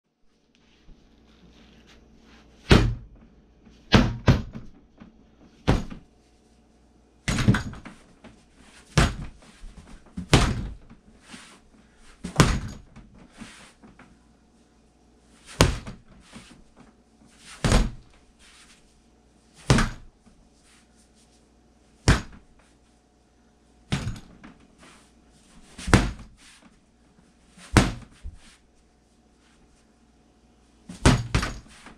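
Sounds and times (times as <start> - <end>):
bat thudding on rubber dummy: 27.7 - 28.4, 30.9 - 31.7.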